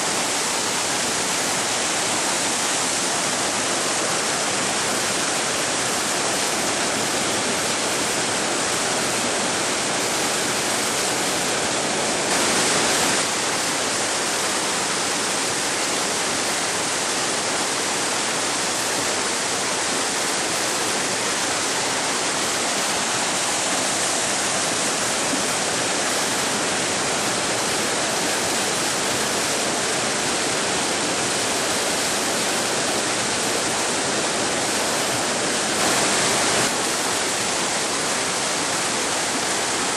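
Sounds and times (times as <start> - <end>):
river rapids rushing: 0.0 - 39.9.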